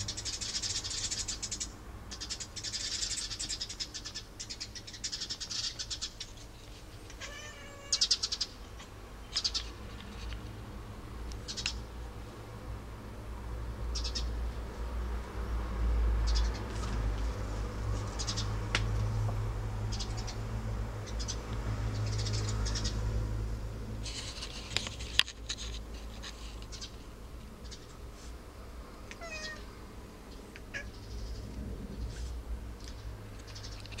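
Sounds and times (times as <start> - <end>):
cat chattering: 29.1 - 29.6, 30.7 - 31.0.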